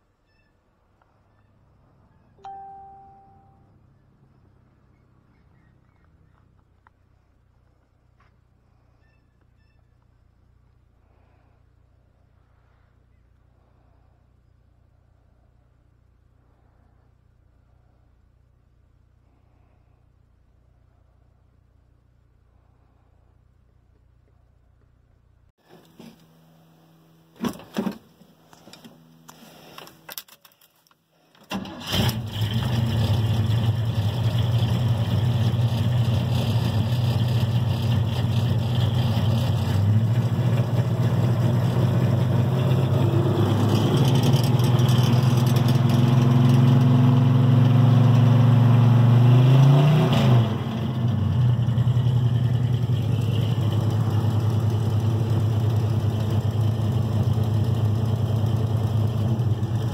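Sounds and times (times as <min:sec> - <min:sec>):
pickup truck engine idling: 0:51.1 - 0:59.9.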